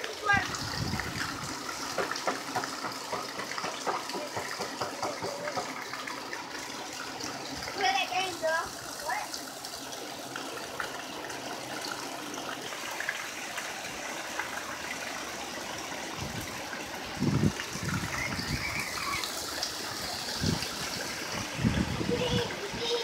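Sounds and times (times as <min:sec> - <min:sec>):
wind buffeting microphone: 0:00.3 - 0:01.5, 0:16.2 - 0:19.0, 0:20.0 - 0:23.0
heavy rain downpour: 0:17.9 - 0:23.0.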